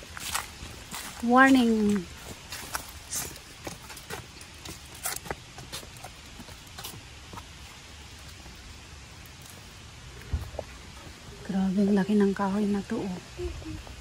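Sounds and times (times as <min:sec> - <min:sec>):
footsteps crunching on leaf litter: 0:00.0 - 0:08.5
faint outdoor hiss: 0:00.0 - 0:14.0.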